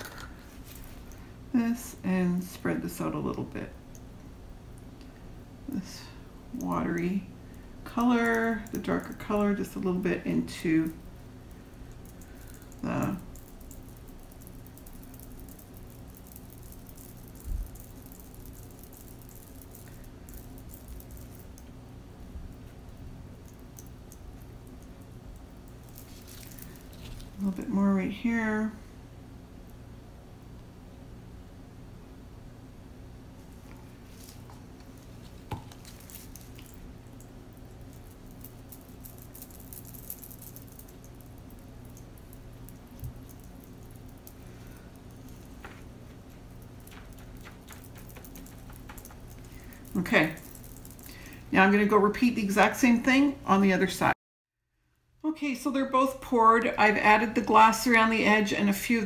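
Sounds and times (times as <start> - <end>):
steady low hum: 0.0 - 59.0
stir stick crackling in resin: 6.5 - 27.8, 33.4 - 51.9.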